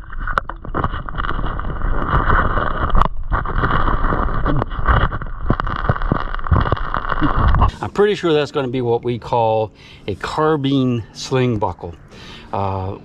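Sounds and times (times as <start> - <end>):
underwater stones clicking: 0.0 - 7.7.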